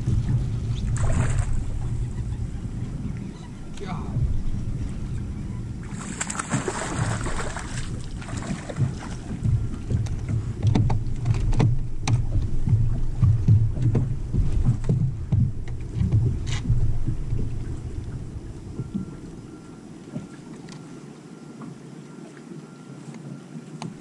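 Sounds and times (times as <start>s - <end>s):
wind buffeting microphone: 0.0s - 20.4s
sharp clicks and knocks: 8.8s - 16.8s.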